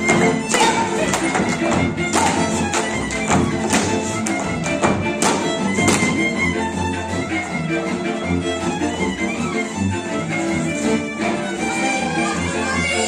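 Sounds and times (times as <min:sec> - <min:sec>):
boots stamping on wooden stage: 0:00.0 - 0:06.4
folk dance music with fiddle: 0:00.0 - 0:13.0.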